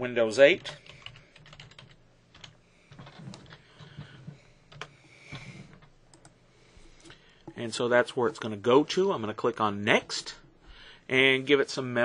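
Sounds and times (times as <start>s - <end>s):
faint keyboard typing: 0.5s - 6.4s.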